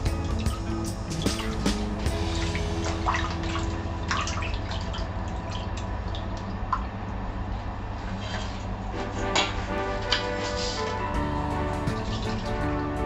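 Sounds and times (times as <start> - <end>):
water sloshing in a steel bowl: 0.1 - 6.9.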